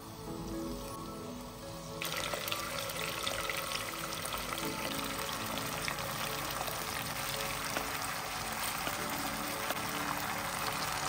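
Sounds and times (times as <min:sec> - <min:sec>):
potatoes sizzling in hot oil: 0:02.0 - 0:11.0
rice poured into pot: 0:02.0 - 0:11.0.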